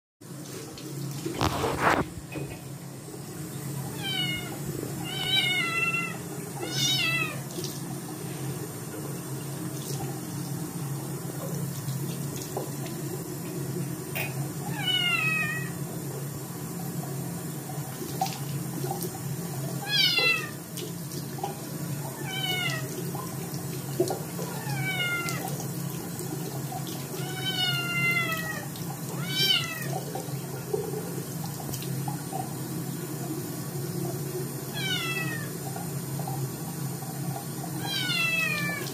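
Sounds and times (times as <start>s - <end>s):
tap water running: 0.2s - 38.9s.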